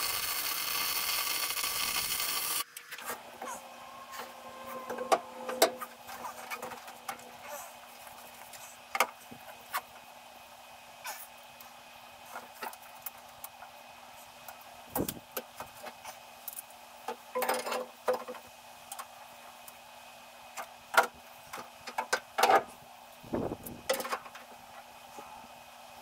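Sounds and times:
faint hum: 0.0 - 17.5, 22.8 - 26.0.

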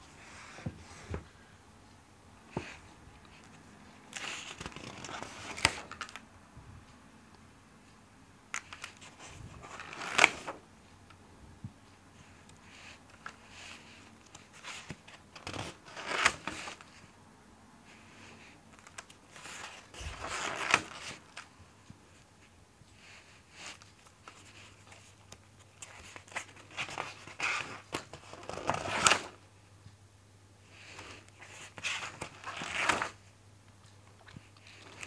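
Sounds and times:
paper pages rustling: 2.5 - 6.2, 8.5 - 10.6, 12.6 - 17.0, 17.9 - 21.6, 23.0 - 29.4, 30.8 - 33.2, 34.2 - 35.0
paper crackling: 4.1 - 6.2, 8.5 - 10.6, 12.8 - 17.0, 18.3 - 21.5, 30.8 - 33.2.

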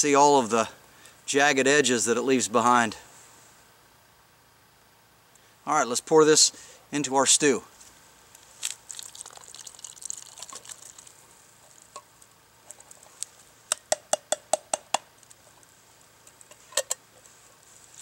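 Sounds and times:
peas poured splashing into pot: 8.6 - 11.2
can tapping against metal pot: 13.7 - 15.1.

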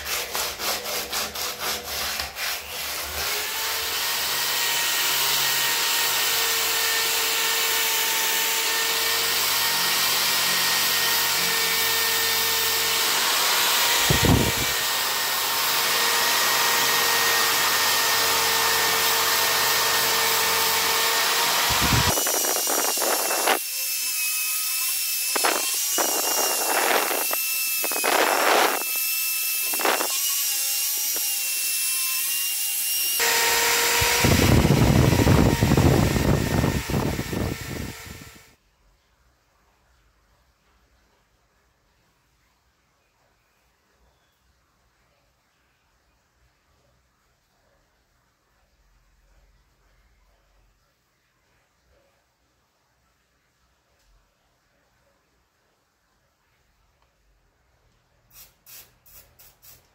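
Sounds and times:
electric drill motor whine: 3.2 - 38.6.

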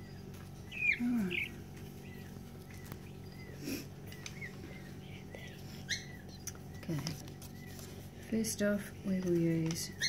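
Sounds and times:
peafowl chick peeping: 0.0 - 8.0.

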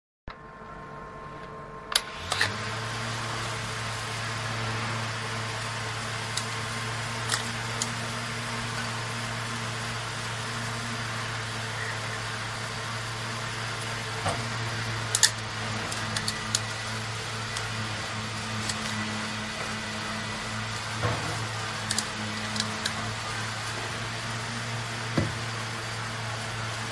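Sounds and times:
electrical equipment hum: 0.3 - 26.9.

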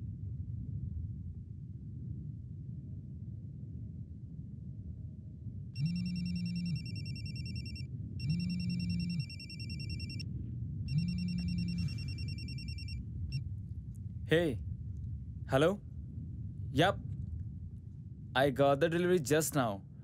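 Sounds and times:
low buzz: 5.8 - 10.2, 10.8 - 13.8
mobile phone ringing: 5.8 - 10.2, 10.9 - 13.0.

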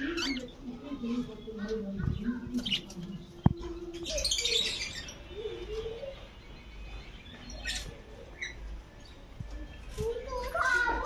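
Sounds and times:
budgerigars chirping: 0.0 - 0.6, 1.5 - 3.4, 6.6 - 8.7.

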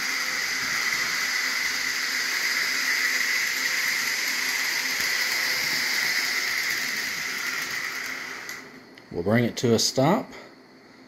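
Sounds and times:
model train whirring: 0.0 - 8.8.

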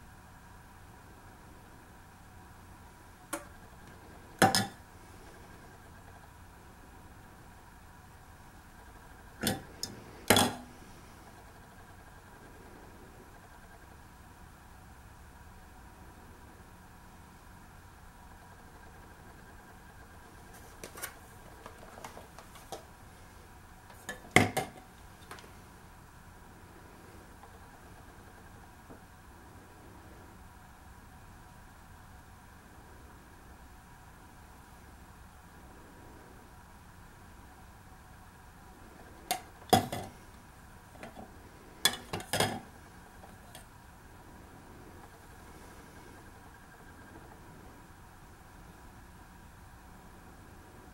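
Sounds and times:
meter clacking against cups: 4.4 - 4.8, 9.4 - 10.7, 23.9 - 24.8, 41.9 - 42.7.

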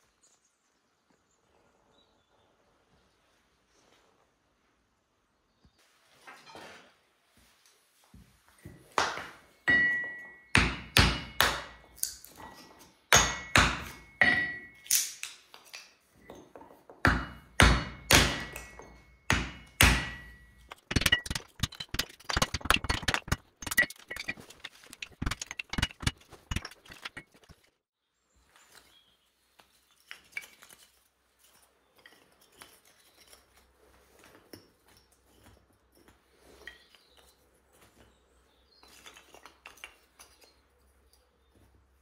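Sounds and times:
split sticks clattering: 9.0 - 27.7.

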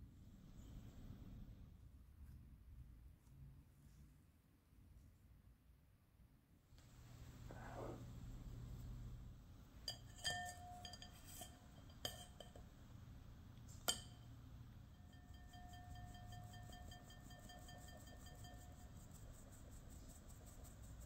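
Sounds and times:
bowl ringing faintly: 9.8 - 13.0, 13.7 - 19.6
sieve knocking on ceramic bowl: 9.9 - 12.7, 13.8 - 14.4, 15.0 - 19.1
sieve ticking while shaken: 15.1 - 21.0.

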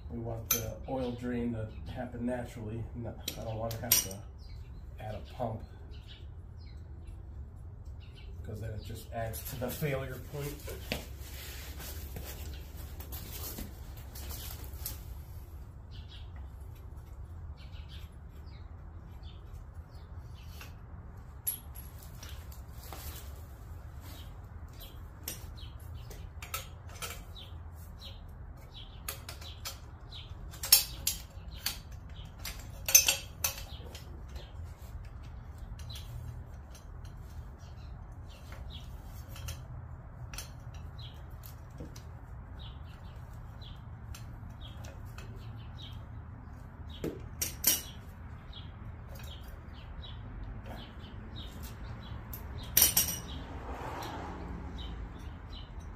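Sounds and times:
hand tools clinking on metal: 0.4 - 0.9, 3.2 - 4.2, 21.4 - 22.6, 29.0 - 37.4, 47.0 - 53.4.

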